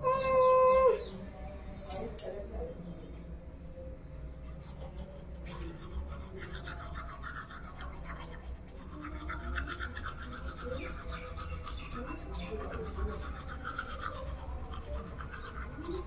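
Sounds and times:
toothbrush scrubbing teeth: 4.5s - 16.0s.

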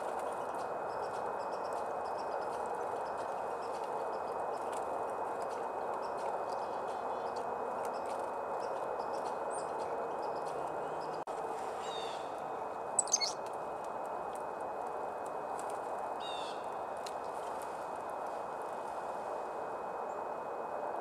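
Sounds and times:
chickadees calling: 13.0s - 13.4s.

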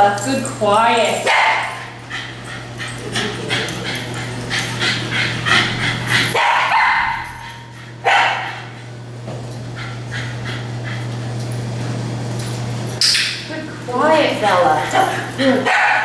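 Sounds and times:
dog barking: 1.2s - 1.9s, 6.4s - 8.7s, 15.6s - 16.0s.

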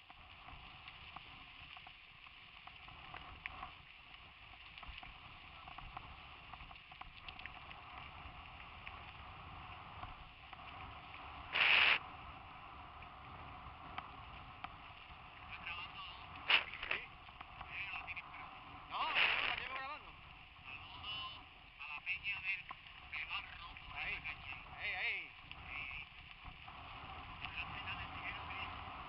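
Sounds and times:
small clicks and rattles: 0.0s - 12.0s
wind hiss: 0.0s - 29.0s
tyres on gravel: 14.6s - 18.2s, 18.9s - 20.2s.

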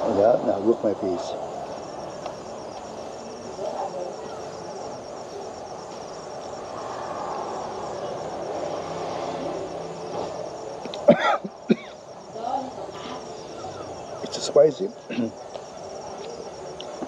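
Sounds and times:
insects chirring: 0.0s - 17.0s
man coughing: 11.0s - 12.0s, 15.1s - 15.4s.

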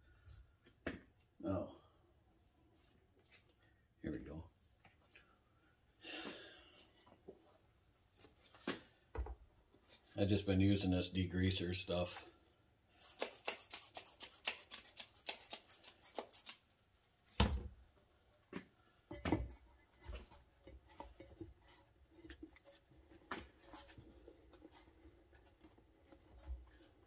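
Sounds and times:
spray bottle squirting: 13.0s - 16.6s.

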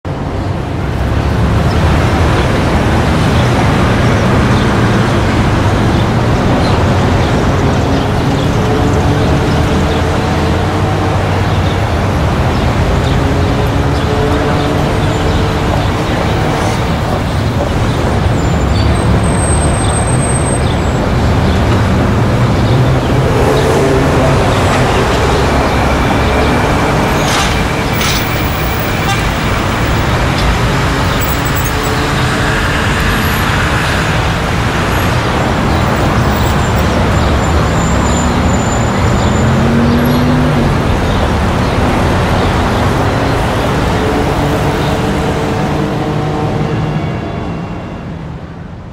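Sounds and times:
traffic with engines passing: 0.1s - 48.9s.

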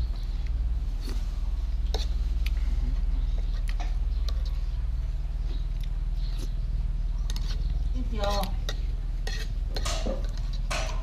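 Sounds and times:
steady low hum: 0.0s - 11.0s
metal spoon scraping frying pan: 7.3s - 11.0s.

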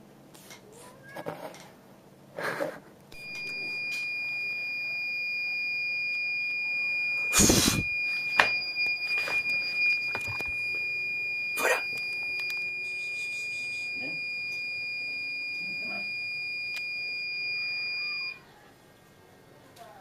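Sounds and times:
high-pitched buzzer tone: 3.2s - 18.4s.

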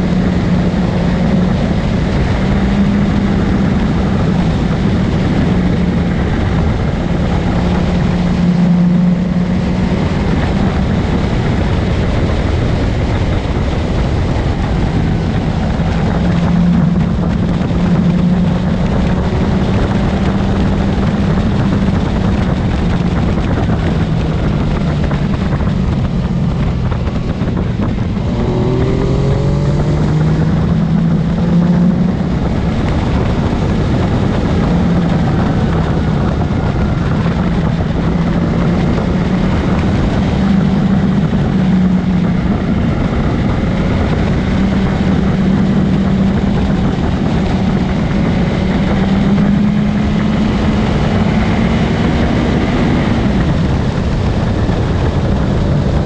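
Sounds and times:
motorcycle engine running: 0.0s - 56.0s
wind rushing: 0.0s - 56.0s.

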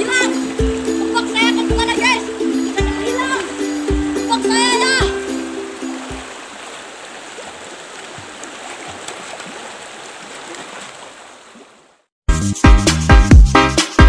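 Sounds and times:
river water rushing: 0.0s - 12.1s
music with heavy beat: 12.3s - 14.0s.

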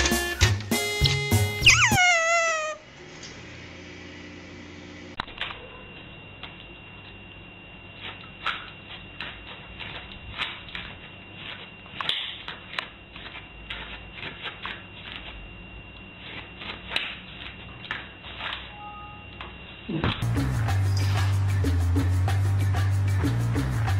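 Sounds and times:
dog claws clicking on floor: 8.0s - 15.4s.

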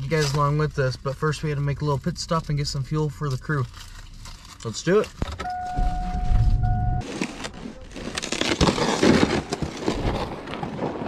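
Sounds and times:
engine rumble: 0.0s - 7.6s
electronic warning chime: 5.4s - 7.0s
sled scraping across icy snow: 7.0s - 11.0s.

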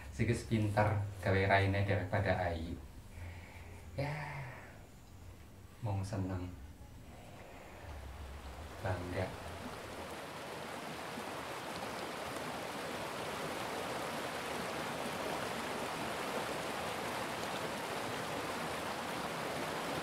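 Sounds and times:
running water rushing: 7.2s - 20.0s.

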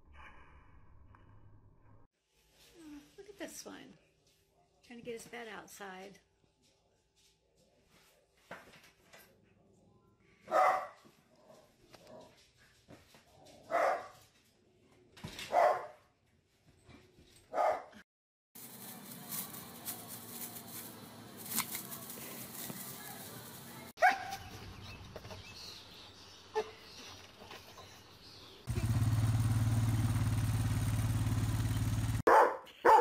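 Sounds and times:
outdoor background noise: 2.2s - 18.0s, 18.6s - 33.0s
dog barking: 10.4s - 12.3s, 13.7s - 14.2s, 15.5s - 16.1s, 17.5s - 18.0s, 24.0s - 24.5s, 32.3s - 33.0s.

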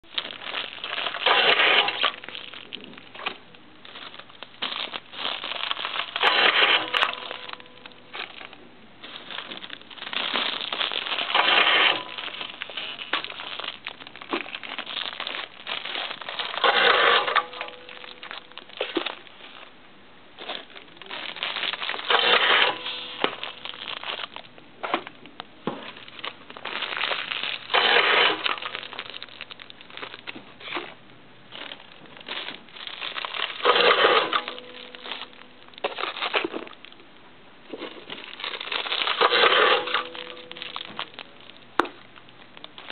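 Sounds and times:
cellophane bags crinkling: 0.0s - 42.9s
bag-tying machine burst: 0.2s - 3.4s, 4.7s - 8.5s, 9.3s - 19.2s, 20.4s - 25.1s, 26.8s - 29.5s, 32.4s - 36.7s, 38.2s - 41.3s.

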